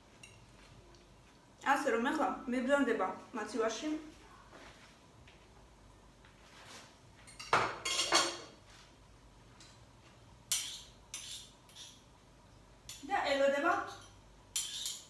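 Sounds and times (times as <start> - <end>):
cutlery clinking on dishes: 7.2 - 8.6, 10.5 - 12.0, 13.9 - 15.0.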